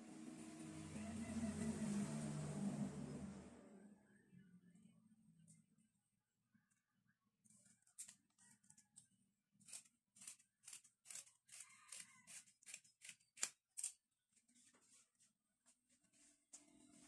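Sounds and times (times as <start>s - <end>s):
scissors snipping fabric: 9.6s - 14.0s.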